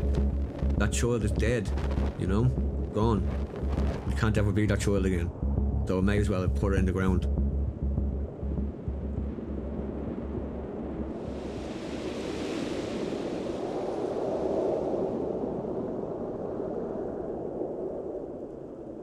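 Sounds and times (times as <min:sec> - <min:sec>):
low pulsing hum: 0:00.0 - 0:12.0
rushing wind-like noise: 0:00.0 - 0:19.0.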